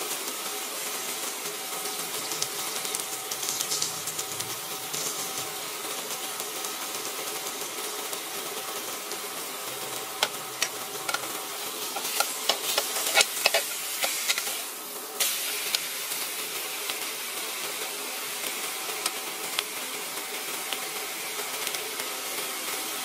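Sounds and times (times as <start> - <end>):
steak sizzling on a grill pan: 0.0 - 23.0
metal tongs scraping a pan: 10.6 - 14.6.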